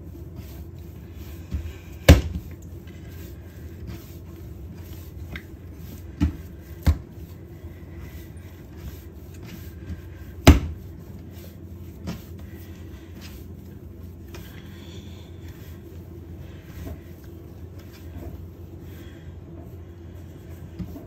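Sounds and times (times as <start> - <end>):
dough kneaded by hand: 0.0 - 21.0
dough slapping clacks: 1.5 - 2.7, 4.9 - 7.2, 10.4 - 11.0.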